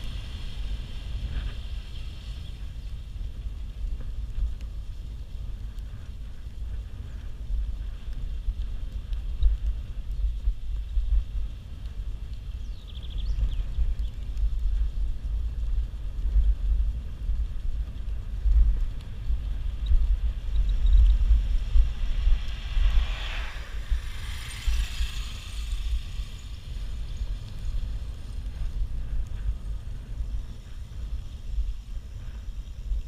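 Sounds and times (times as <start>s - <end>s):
wind rumble on microphone: 0.0s - 33.0s
vehicle passing by: 21.4s - 28.1s.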